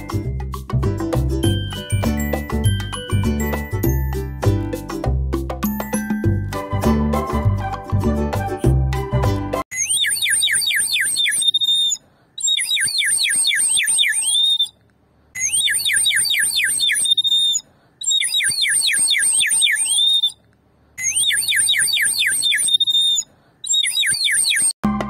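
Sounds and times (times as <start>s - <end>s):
bird whistle warbling trill: 9.7s - 14.8s, 15.4s - 20.4s, 21.0s - 24.8s.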